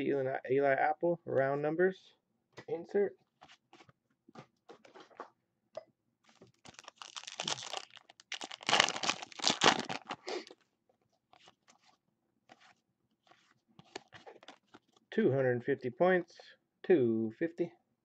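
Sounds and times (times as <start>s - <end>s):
plastic wrapper crinkling and tearing: 6.3s - 10.6s
cards clicking and rustling: 11.4s - 15.0s.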